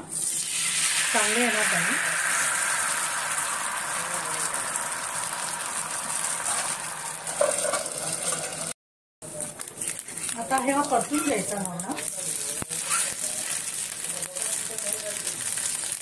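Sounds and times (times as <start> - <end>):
batter sizzling on a griddle: 0.1 - 16.0.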